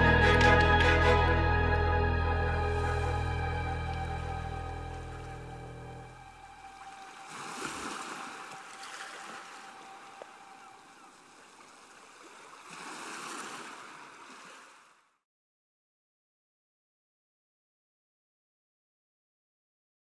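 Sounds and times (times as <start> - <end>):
sea waves washing in: 2.6 - 15.0.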